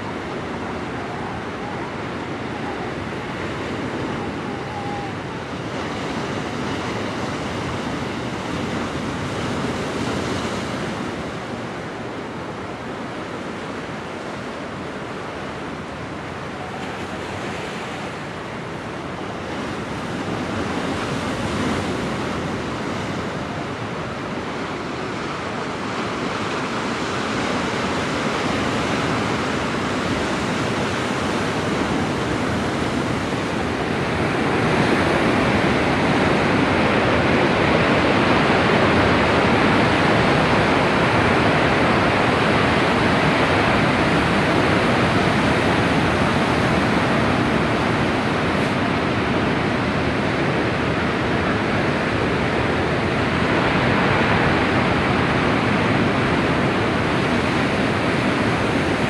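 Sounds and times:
ocean waves on beach: 0:00.0 - 0:59.0.

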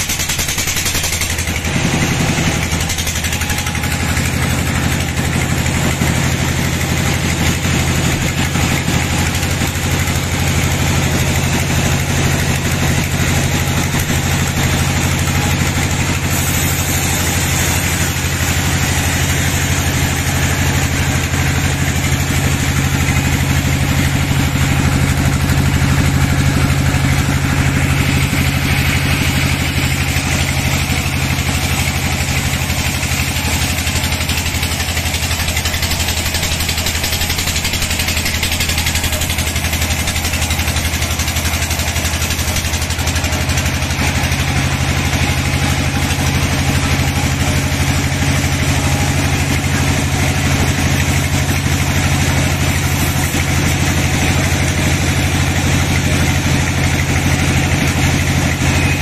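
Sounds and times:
bandsaw sawing log: 0:00.0 - 0:59.0.

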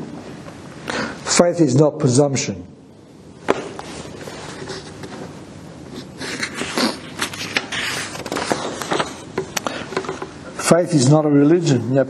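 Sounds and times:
paper rustling and crinkling: 0:06.0 - 0:09.3.

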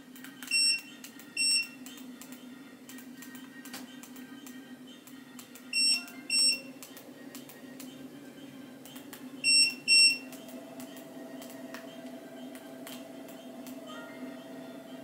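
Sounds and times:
short console beeps: 0:05.8 - 0:06.7, 0:09.5 - 0:10.2
treadmill motor hum: 0:07.9 - 0:15.0.

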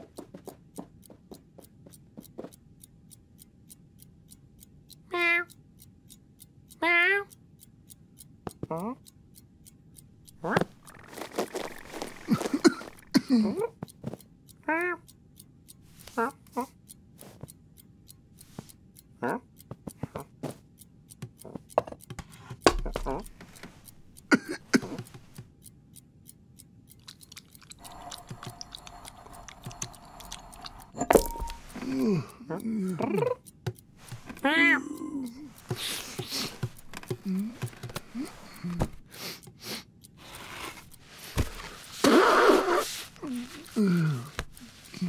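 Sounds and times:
clock ticking: 0:00.0 - 0:45.0
soft taps and rustles: 0:41.0 - 0:42.0.

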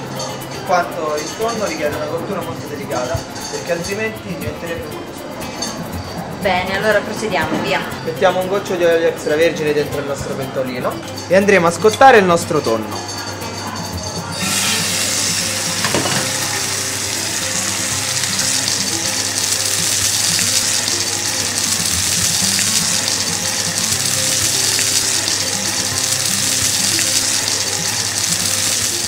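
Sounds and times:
faint background music: 0:00.0 - 0:29.0
fish sizzling in frying pan: 0:14.3 - 0:29.0.

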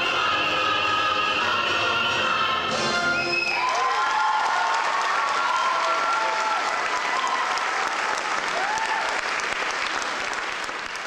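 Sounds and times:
whoops and cheers: 0:03.2 - 0:09.3
audience applauding: 0:03.5 - 0:11.0.

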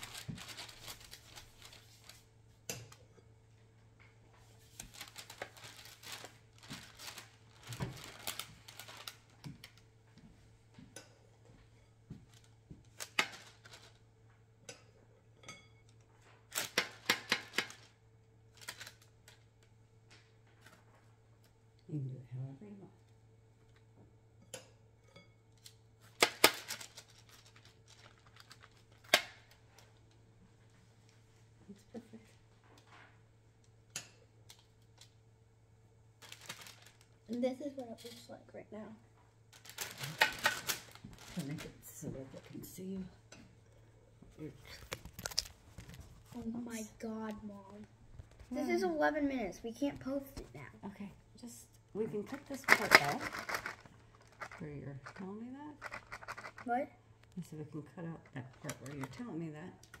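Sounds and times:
faint steady hum: 0:00.0 - 1:00.0
kitchen utensils clicking and tapping: 0:16.6 - 0:17.8.

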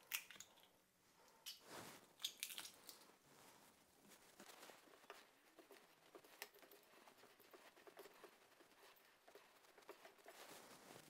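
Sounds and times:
wooden spoon stirring dough: 0:03.4 - 0:11.0.

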